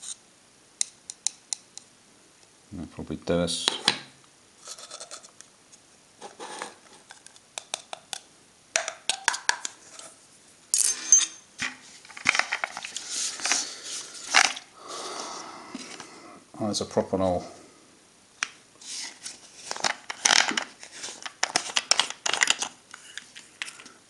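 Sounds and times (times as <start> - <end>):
metal tin clinking and scraping: 4.6 - 5.3.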